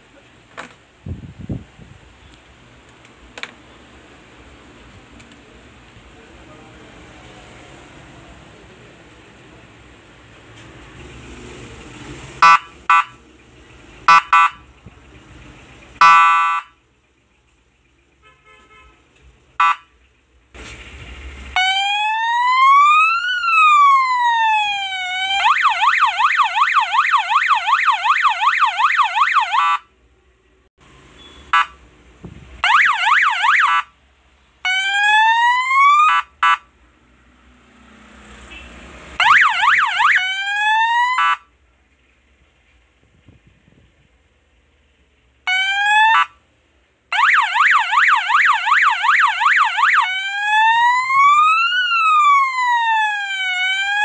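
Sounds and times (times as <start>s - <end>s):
electronic police siren: 21.6s - 29.9s, 32.6s - 33.9s, 34.7s - 36.6s, 39.2s - 41.5s, 45.5s - 46.4s, 47.1s - 54.0s.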